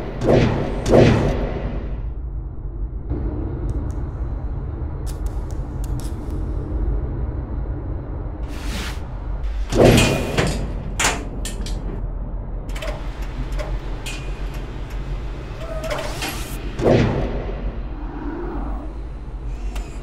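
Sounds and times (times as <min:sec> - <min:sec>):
low mechanical drone: 0:00.0 - 0:20.0
mechanical sliding and clanking: 0:08.5 - 0:12.0, 0:12.7 - 0:17.1, 0:19.4 - 0:20.0.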